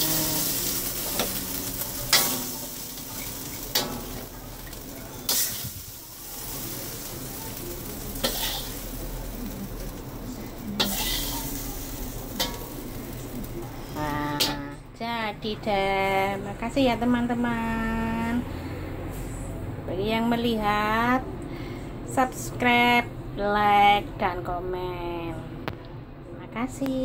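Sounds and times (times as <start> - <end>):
shrimp sizzling in a pan: 0.0 - 14.7
utensil clacking against pan: 10.8 - 11.3, 12.4 - 12.7.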